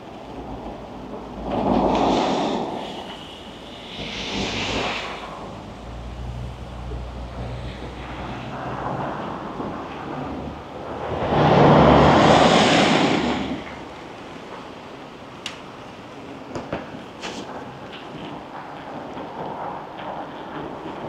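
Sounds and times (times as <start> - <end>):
vehicle passing close by: 3.8 - 14.3.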